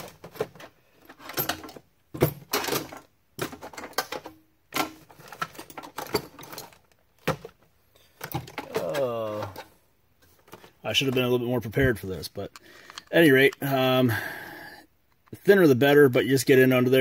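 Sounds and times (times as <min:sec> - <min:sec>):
hand tools clattering: 0:00.0 - 0:07.5.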